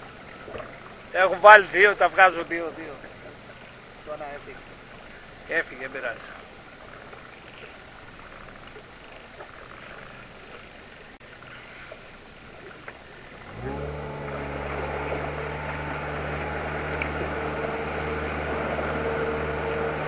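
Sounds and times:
faint wind: 0:00.0 - 0:20.0
water: 0:00.0 - 0:20.0
outboard motor running: 0:12.6 - 0:20.0.

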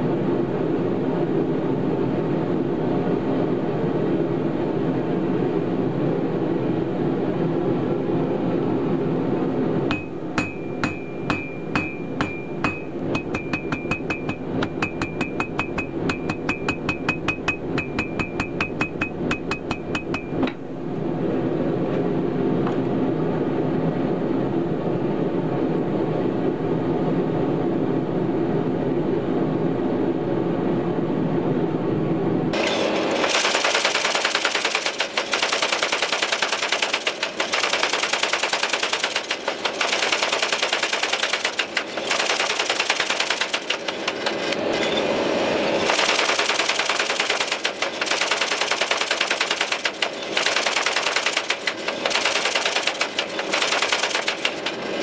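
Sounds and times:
steady low noise: 0:00.0 - 0:32.5
power hammer striking hot steel: 0:09.9 - 0:20.6, 0:45.7 - 0:55.0.

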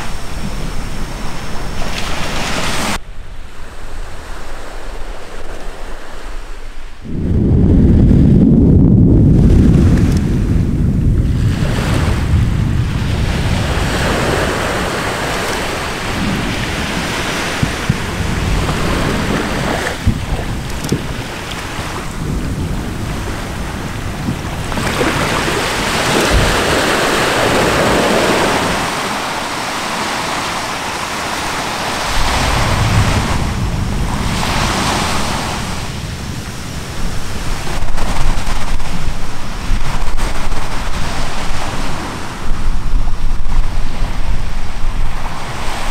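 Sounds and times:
surf: 0:00.0 - 0:45.9
wind noise on microphone: 0:00.0 - 0:45.9
volcanic explosion rumble: 0:07.0 - 0:29.0, 0:32.1 - 0:40.8.

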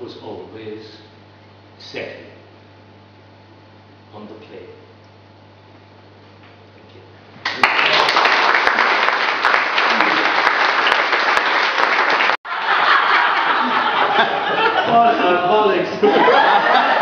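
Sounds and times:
audience applauding: 0:07.4 - 0:14.7.

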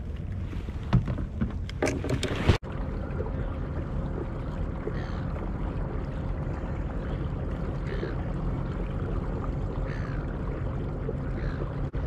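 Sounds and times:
water splashing around kayak: 0:00.0 - 0:12.0
wind: 0:00.0 - 0:12.0
faint steady hum: 0:02.6 - 0:12.0.

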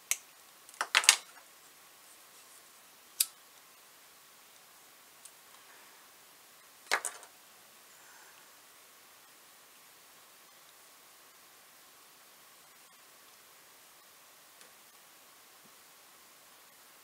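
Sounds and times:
clicks of wires handled: 0:00.1 - 0:01.4.

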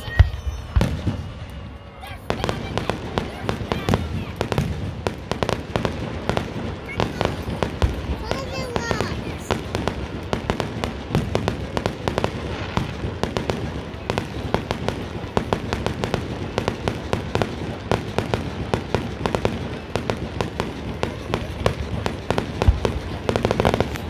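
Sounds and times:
fireworks popping and crackling: 0:00.0 - 0:24.0.

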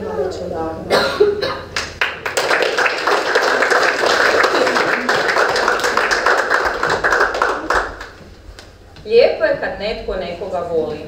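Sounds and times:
audience applauding: 0:01.8 - 0:08.2.

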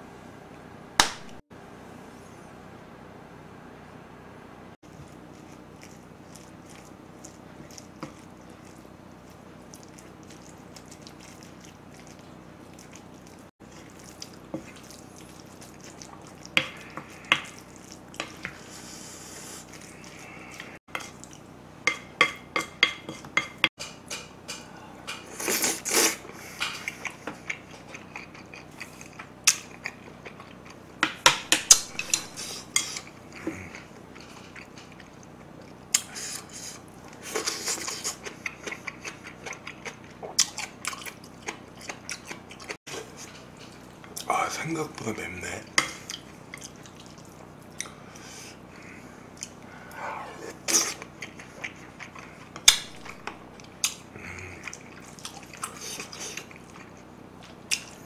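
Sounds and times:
spoon scraping and clinking bowl: 0:31.6 - 0:33.1.

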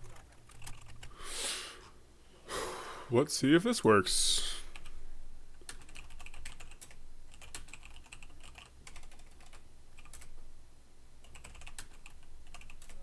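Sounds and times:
typing on computer keyboard: 0:00.0 - 0:01.1, 0:05.6 - 0:10.3, 0:11.2 - 0:13.0.

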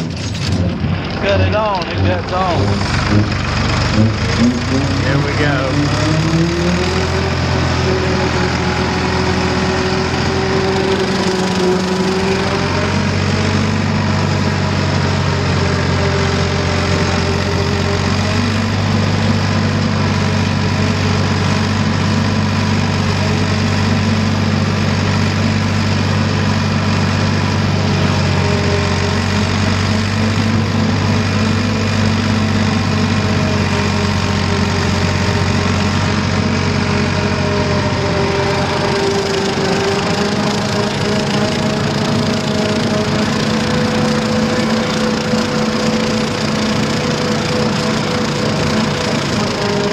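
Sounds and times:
rotary cutter cutting grass: 0:00.0 - 0:49.9
tractor engine running under load: 0:00.0 - 0:49.9.

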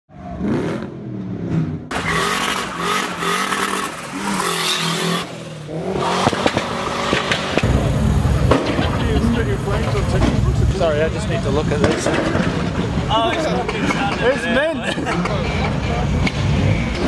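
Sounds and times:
car engine revving: 0:00.1 - 0:13.3
heavy low rumble: 0:05.7 - 0:13.4.

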